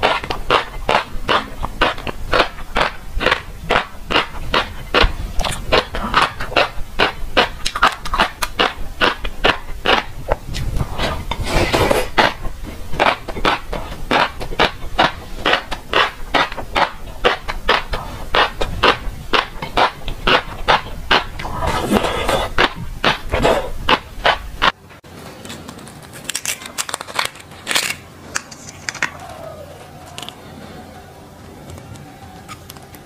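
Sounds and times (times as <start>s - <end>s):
chewing fish roe: 0.0s - 11.3s, 12.0s - 24.8s.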